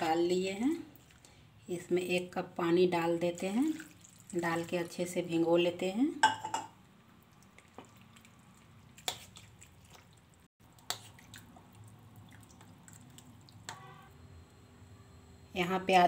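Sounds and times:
wet squishing: 0.9s - 1.4s, 3.6s - 5.0s, 7.2s - 13.9s.

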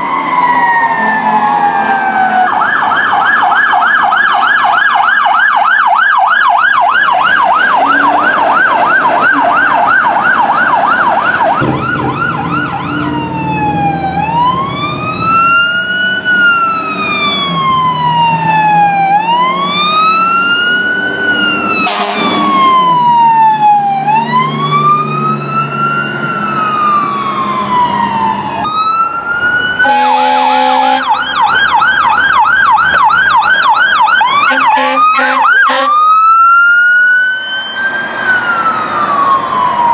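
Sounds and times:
siren wail: 0.0s - 39.9s
siren yelp: 0.0s - 39.9s
vehicle horn blast: 7.4s - 9.9s, 21.8s - 22.4s, 29.8s - 31.1s, 34.4s - 36.0s.

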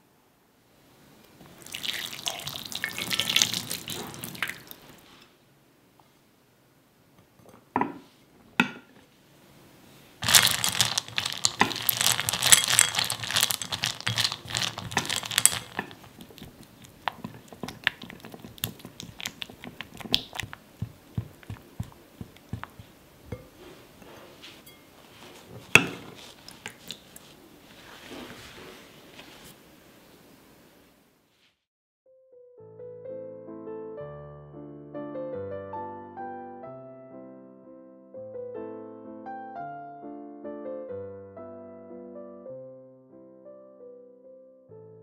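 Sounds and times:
chocolate chips poured into glass bowl: 1.6s - 4.6s, 10.2s - 20.5s
spatula scraping glass bowl: 23.4s - 27.0s.

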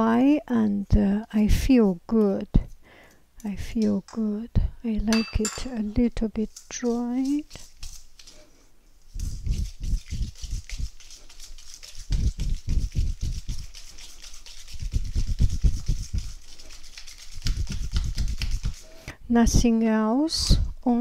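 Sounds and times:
whisk scraping metal bowl: 5.1s - 8.6s, 9.2s - 19.2s.

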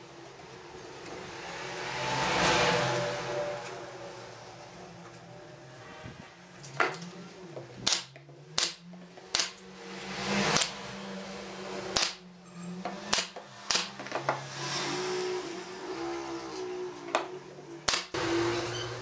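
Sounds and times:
nail gun firing into boards: 7.8s - 9.6s, 10.5s - 10.8s, 12.0s - 12.2s, 13.1s - 14.0s, 17.9s - 18.2s.

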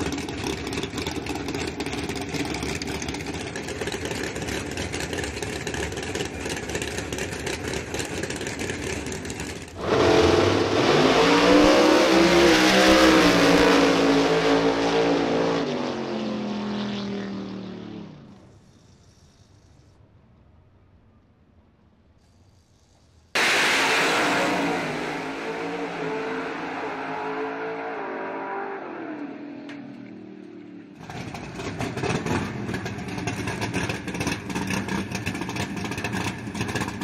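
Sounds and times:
drag car engine running: 0.0s - 14.7s, 31.0s - 37.0s
drag cars launching full throttle: 0.0s - 18.4s, 23.4s - 30.0s.

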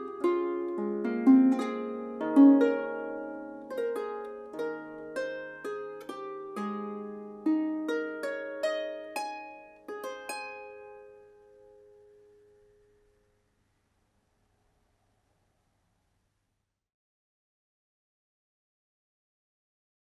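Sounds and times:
harp plucked notes and chords: 0.0s - 12.0s.

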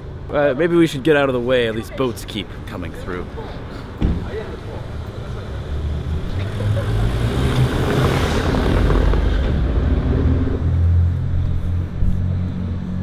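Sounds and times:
car driving over cobblestones: 4.1s - 13.0s.

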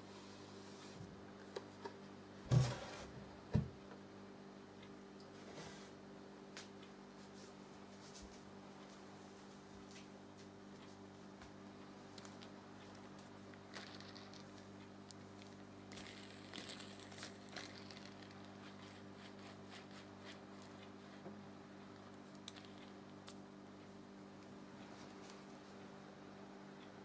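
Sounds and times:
steady low hum: 0.0s - 27.0s
faint metallic clicks and clinks: 12.2s - 20.4s, 22.0s - 23.6s.

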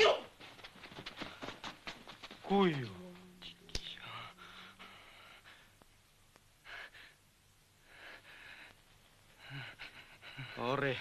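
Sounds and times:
low steady hum: 0.3s - 11.0s
faint breaths: 0.9s - 1.9s, 3.8s - 11.0s.

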